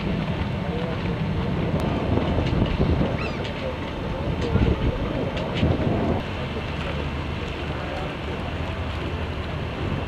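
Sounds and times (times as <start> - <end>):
wind buffeting microphone: 0.0 - 7.8
faint crowd voices: 0.0 - 10.0.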